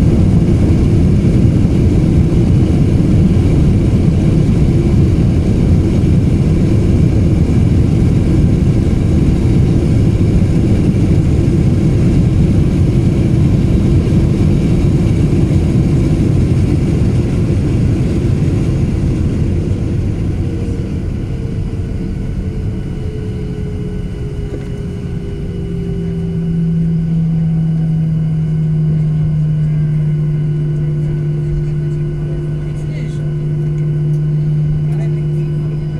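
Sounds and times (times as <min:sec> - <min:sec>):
falling jet engine whine: 0:00.0 - 0:35.9
rumble of wheels and engines: 0:00.0 - 0:35.9
steady engine hum: 0:00.0 - 0:35.9.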